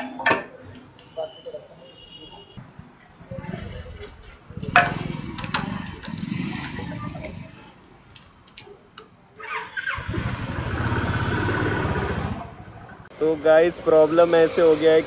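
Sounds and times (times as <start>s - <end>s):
engine running past: 10.0s - 12.9s.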